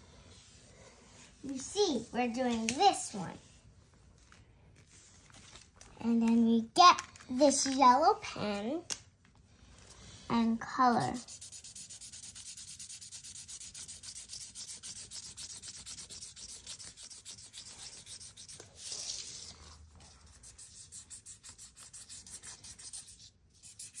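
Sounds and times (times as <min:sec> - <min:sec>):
marker scrubbing on velvet: 0:11.0 - 0:24.0.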